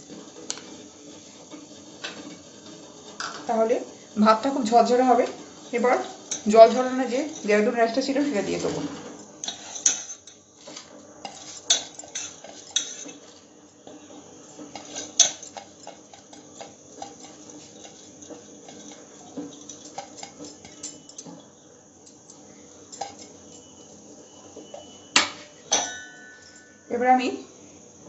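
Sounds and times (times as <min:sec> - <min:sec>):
metal clinks and scraping: 0:08.6 - 0:13.5, 0:14.5 - 0:26.9.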